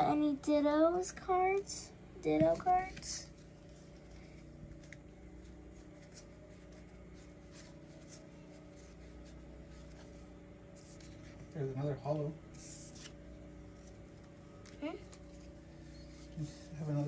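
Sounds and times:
low room hum: 0.0 - 17.0
trading cards flipped by hand: 4.7 - 11.5, 12.6 - 16.4.

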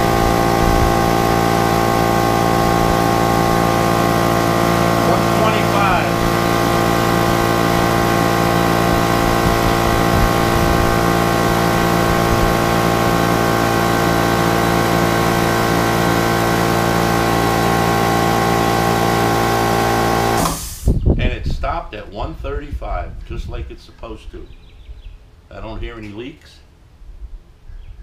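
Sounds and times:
air compressor running: 0.0 - 21.0.

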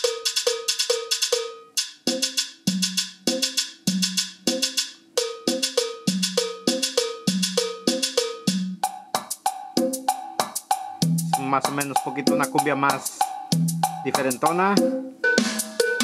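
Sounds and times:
cumbia drum loop: 0.0 - 16.0
percussion loops: 0.0 - 16.0.

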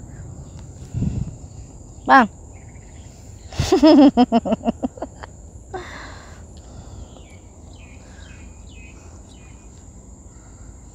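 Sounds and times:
high-pitched insect whine: 0.0 - 10.9
bird chirping: 7.0 - 9.8.

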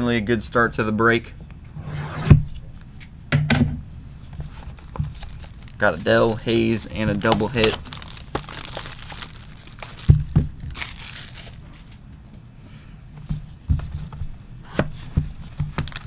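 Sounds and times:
plastic wrap crinkling and tearing: 4.4 - 12.0, 15.4 - 16.0.

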